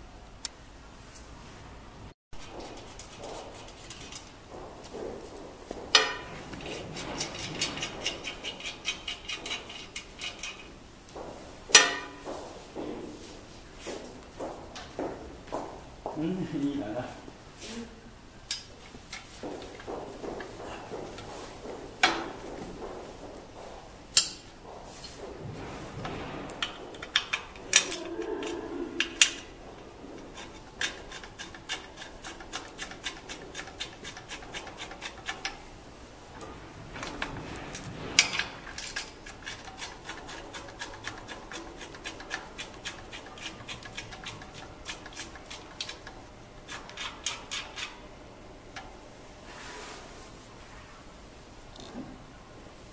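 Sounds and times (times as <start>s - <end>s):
metal rubbing on metal: 2.4s - 10.8s, 26.5s - 35.8s, 36.9s - 50.1s
metal press parts clanking: 11.7s - 12.2s, 26.5s - 29.5s.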